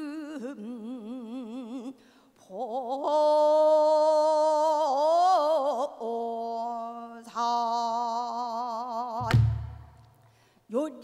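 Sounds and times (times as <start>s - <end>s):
short breath: 2.0s - 2.4s, 10.2s - 10.7s.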